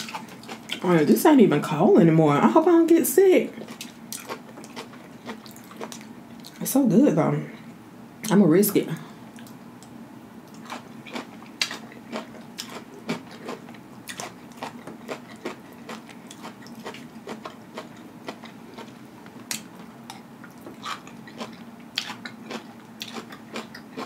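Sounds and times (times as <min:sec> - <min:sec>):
chewing food: 0:00.0 - 0:01.1, 0:03.6 - 0:06.6, 0:10.5 - 0:24.0.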